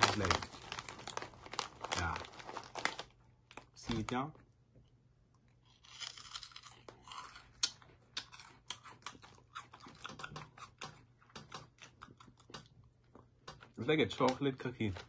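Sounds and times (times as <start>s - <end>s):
crunchy snack being chewed: 5.6s - 10.9s.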